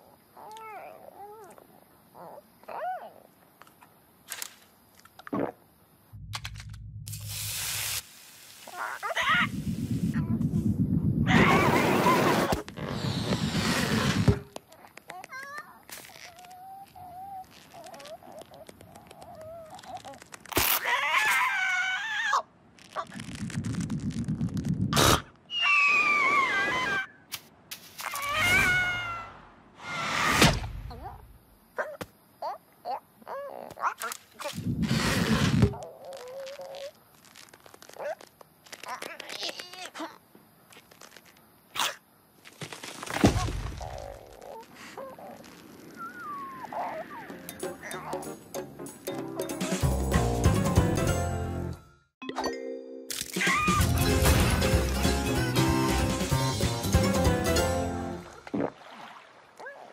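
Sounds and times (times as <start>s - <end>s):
small creaks: 12.5s - 21.4s, 22.7s - 25.2s, 32.9s - 47.0s
wavering falling whistle tone: 46.0s - 47.3s.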